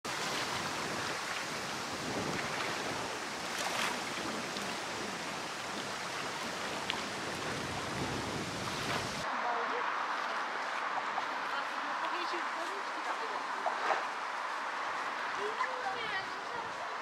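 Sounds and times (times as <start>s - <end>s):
small splashes: 0.1s - 9.3s
wavelets lapping on lake: 0.1s - 17.0s
wind blowing: 0.1s - 17.0s.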